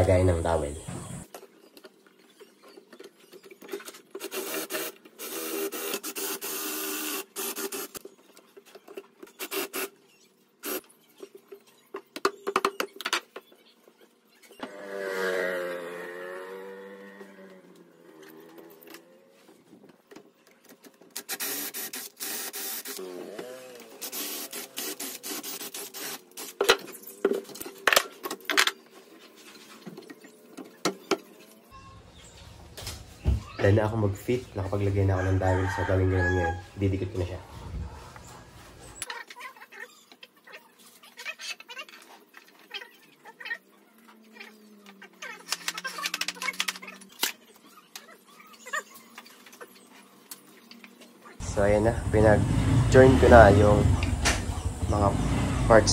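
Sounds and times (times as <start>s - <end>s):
cordless drill boring wood: 4.3s - 8.0s, 21.3s - 26.2s.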